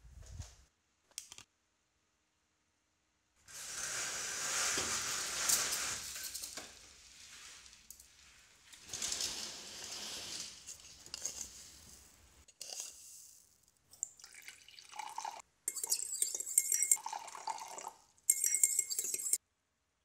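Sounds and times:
blind slats rustling and clacking: 8.7s - 11.8s.

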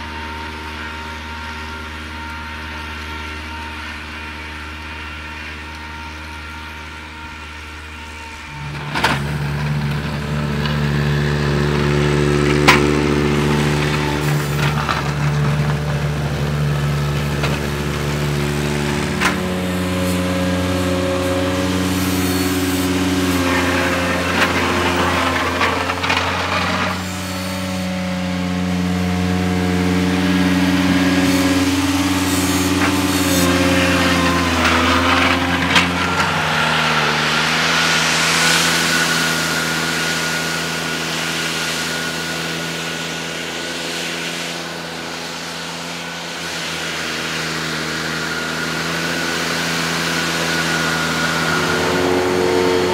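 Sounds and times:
steady high whine: 0.0s - 52.9s
tractor engine under load: 0.0s - 52.9s
blade shoving snow hiss: 13.1s - 28.0s, 29.7s - 52.9s.

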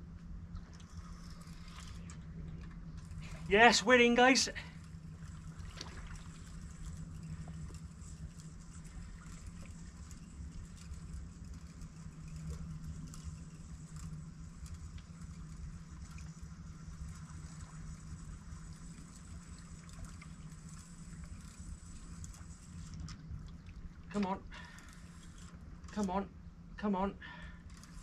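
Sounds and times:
low outdoor rumble: 0.0s - 28.0s
small ticks: 4.6s - 26.1s.

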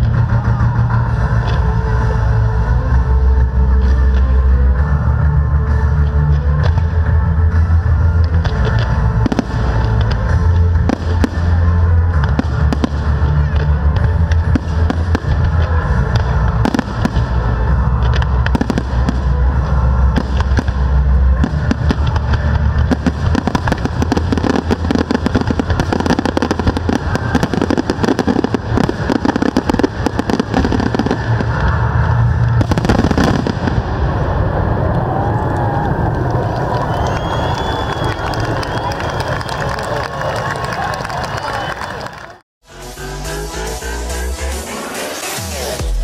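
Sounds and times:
deep fireworks booms: 6.6s - 38.8s
fireworks bursting: 8.2s - 39.4s
fireworks crackling: 8.2s - 41.9s.

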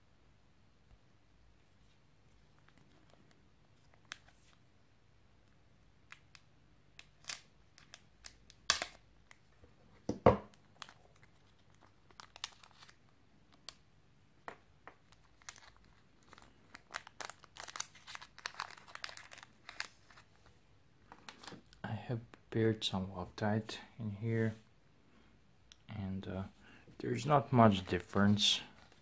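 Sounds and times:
plastic bag crinkling and tearing: 10.6s - 13.0s, 15.1s - 20.5s.

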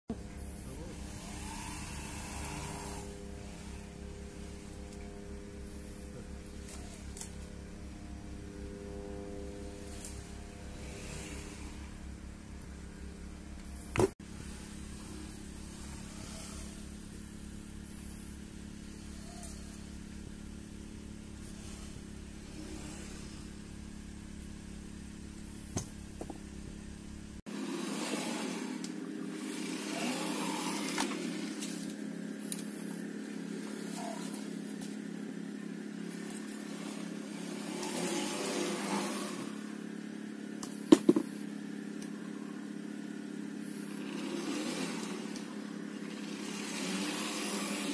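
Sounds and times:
machine hum: 0.1s - 47.9s
noisy sweeps: 0.1s - 47.9s.

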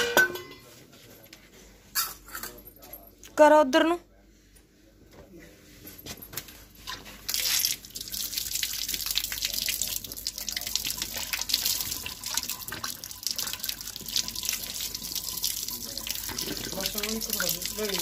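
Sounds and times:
water splashing from tap: 7.2s - 18.0s.

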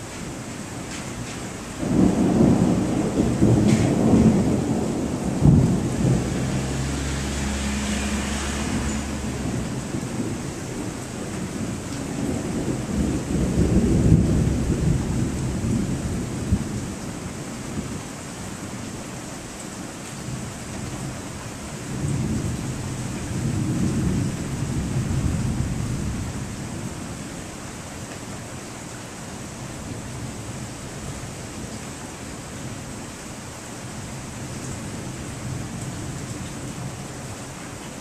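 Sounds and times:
steady rain: 0.0s - 38.0s
thunder rumbling: 1.2s - 17.0s.

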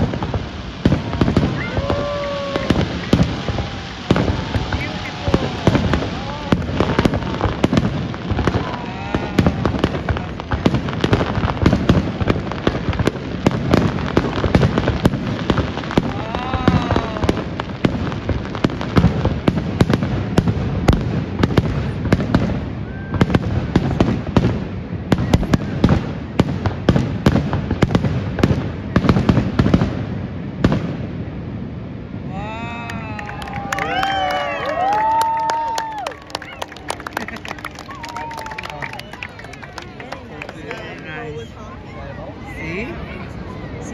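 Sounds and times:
firework shells bursting: 0.0s - 22.4s
fireworks crackling: 0.0s - 43.9s.

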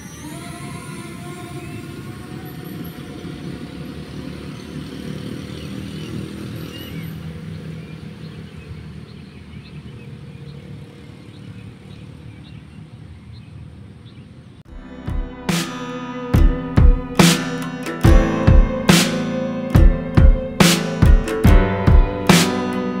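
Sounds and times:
cars passing: 0.4s - 23.0s
motorcycle engines passing: 0.7s - 14.6s.

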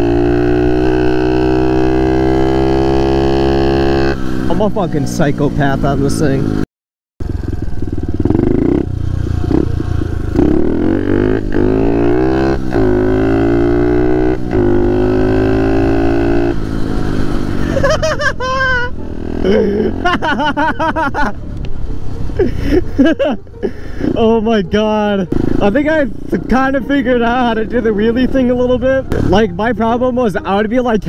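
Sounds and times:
small motorbike engine revving: 0.0s - 4.5s, 7.2s - 20.4s.

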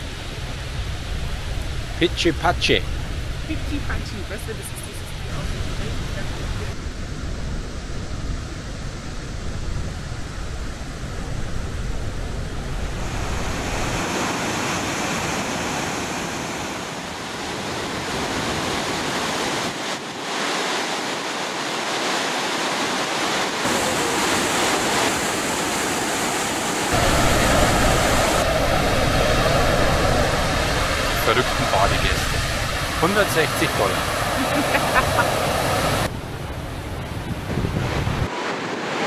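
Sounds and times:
wind buffeting microphone: 0.0s - 20.4s, 23.4s - 39.0s
waterfall rushing: 12.8s - 37.5s.

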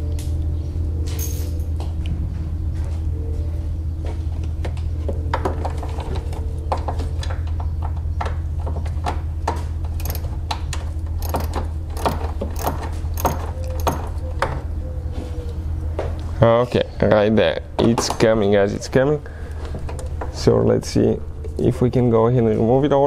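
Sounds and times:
low hum: 0.0s - 23.0s
hand ratchet clicking: 10.0s - 10.3s, 11.2s - 14.2s.

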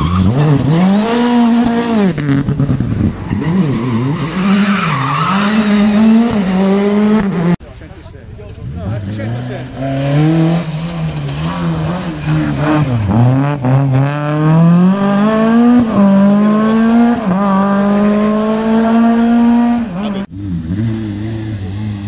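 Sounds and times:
car engine accelerating and upshifting: 0.0s - 7.6s, 8.6s - 22.0s.

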